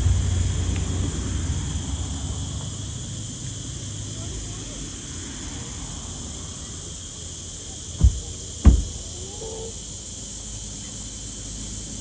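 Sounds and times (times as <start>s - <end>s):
high hiss: 0.0s - 12.0s
car driving noise: 7.8s - 9.3s
dull thumps: 8.0s - 9.0s.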